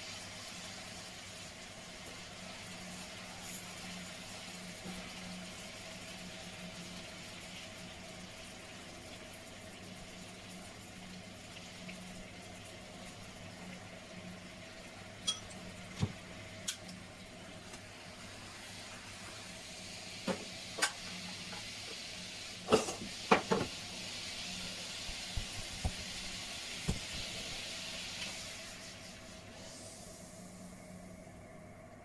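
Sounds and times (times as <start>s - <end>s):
metal tongs clinking on dishes: 15.2s - 15.6s
pan juices sizzling: 18.2s - 29.2s.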